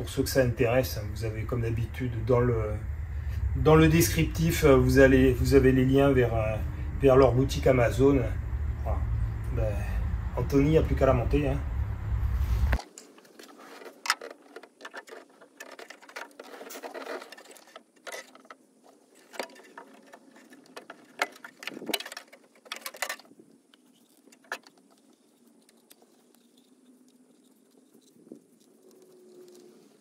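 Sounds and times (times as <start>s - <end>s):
tools clicking and knocking: 12.8s - 18.6s, 19.2s - 23.3s.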